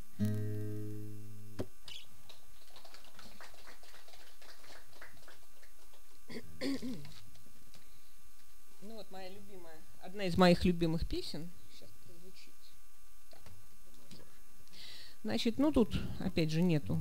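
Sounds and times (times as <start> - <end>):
acoustic guitar chord ringing: 0.0 - 1.7.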